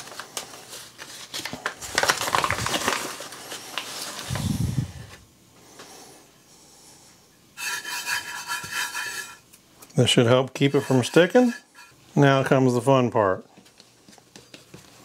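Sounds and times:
paper bag crinkling: 0.0 - 5.2.

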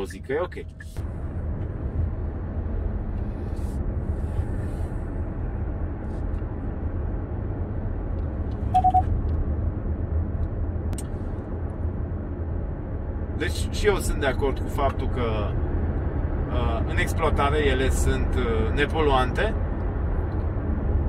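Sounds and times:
road and tyre rumble in car: 0.0 - 21.0
short double beep: 8.8 - 9.1.

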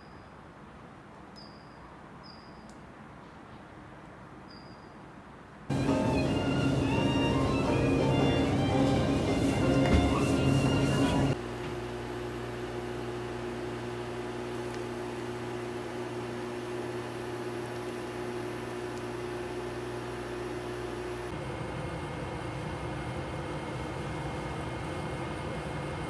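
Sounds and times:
background music: 5.7 - 11.4
cooling fan running: 5.7 - 26.0
induction cooker electrical hum: 5.7 - 26.0.

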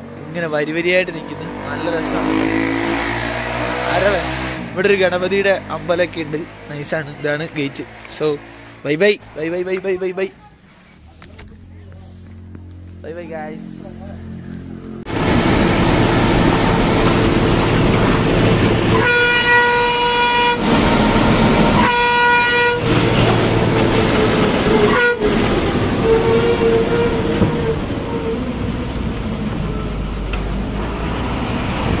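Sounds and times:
bus engine and road noise: 0.0 - 32.0
bus horn blasts: 17.9 - 28.5.

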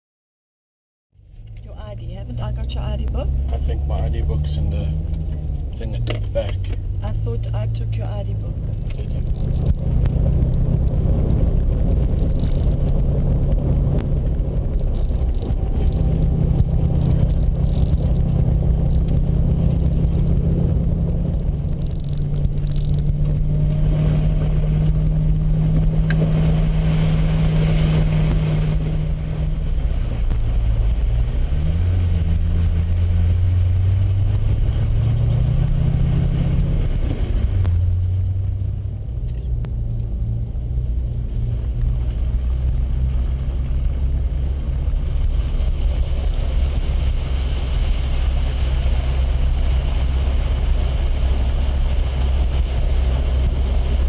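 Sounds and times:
car engine running: 1.2 - 54.0.

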